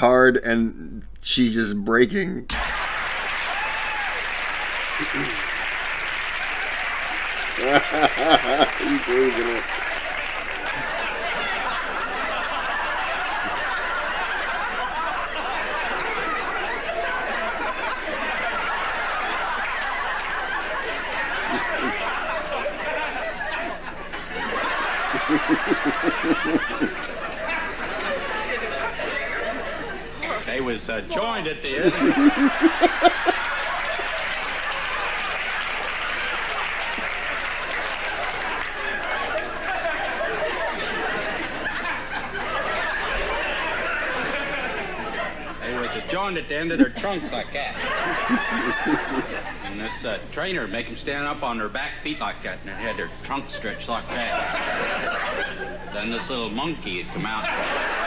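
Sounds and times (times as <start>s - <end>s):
studio audience laughing: 2.5s - 50.3s, 51.8s - 58.0s
person laughing ha: 5.0s - 5.4s, 7.6s - 9.6s, 12.2s - 12.4s, 25.1s - 27.0s, 31.8s - 33.8s, 48.2s - 49.2s.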